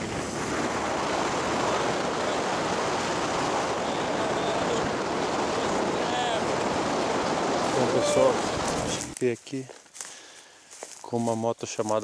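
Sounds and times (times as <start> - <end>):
wind rushing on microphone: 0.0 - 9.2.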